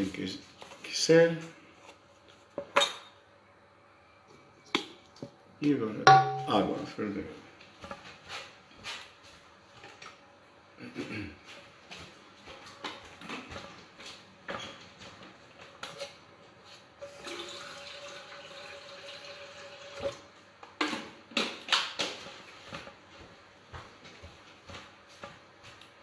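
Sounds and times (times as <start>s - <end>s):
vessel knocking: 6.1s - 6.7s
tap water filling vessel: 17.0s - 20.2s.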